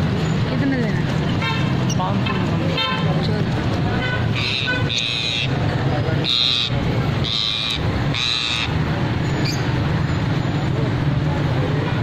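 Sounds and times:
market crowd murmur: 0.0 - 12.0
traffic hum: 0.0 - 12.0
lovebirds shrill calls: 4.3 - 5.6, 6.2 - 8.8.

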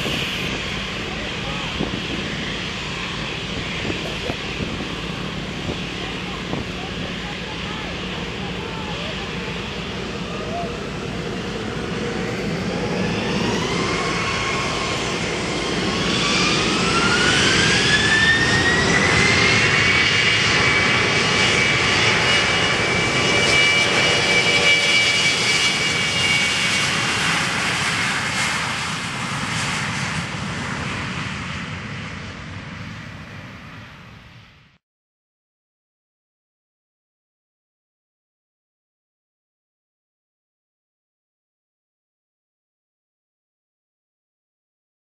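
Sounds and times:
jet engines spooling up: 0.0 - 34.5
jet rolling down runway: 0.0 - 34.8.

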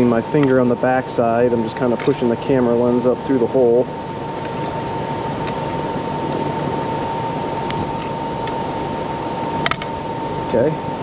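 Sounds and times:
high whine: 0.0 - 11.0
steady whirring: 0.0 - 11.0.

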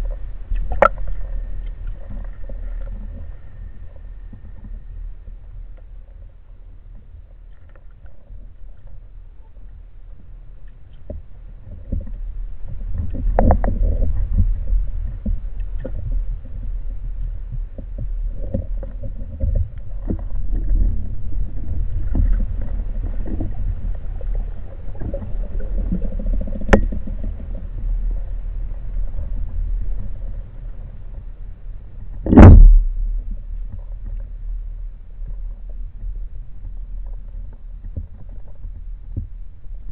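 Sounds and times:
underwater water rumble: 0.0 - 39.9.

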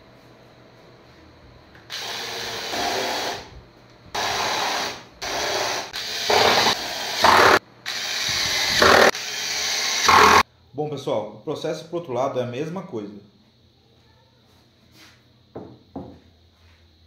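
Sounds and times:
cordless drill driving screws: 1.9 - 3.5, 4.2 - 10.4.

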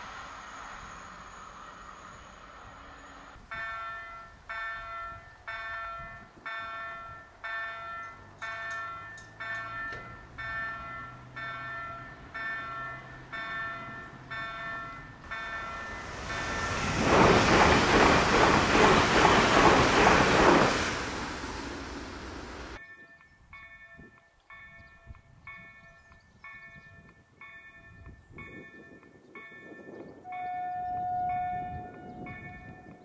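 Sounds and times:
train rushing past: 0.0 - 3.9, 8.9 - 22.8
crossing warning bell: 3.5 - 18.2, 22.8 - 33.0.

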